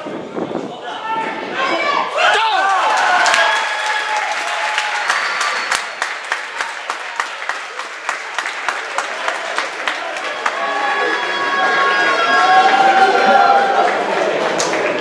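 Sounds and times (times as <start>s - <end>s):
people shouting: 1.0s - 3.6s
spectators clapping: 2.4s - 15.0s.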